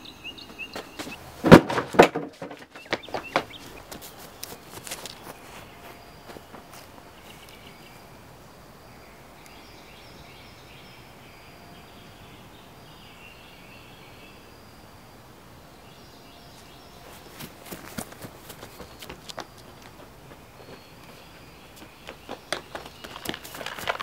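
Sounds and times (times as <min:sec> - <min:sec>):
steady background hiss: 0:00.0 - 0:24.0
footsteps on concrete: 0:00.4 - 0:01.2, 0:02.0 - 0:07.6, 0:17.1 - 0:24.0.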